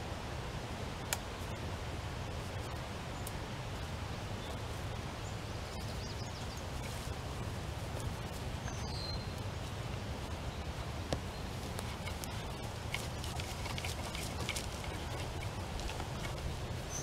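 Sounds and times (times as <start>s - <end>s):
grass and wire rustling: 1.1s - 17.0s
bird chirp: 4.4s - 7.0s, 8.0s - 9.4s, 10.4s - 17.0s.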